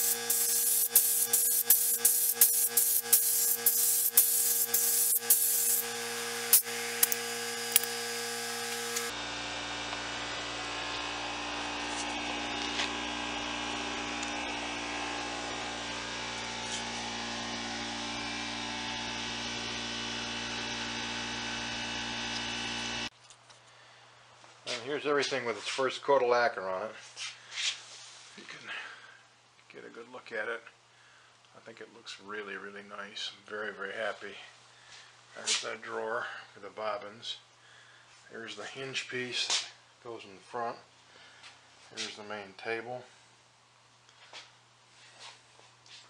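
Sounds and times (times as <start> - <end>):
spray gun hissing: 0.0 - 9.1
steady hum: 0.0 - 18.7.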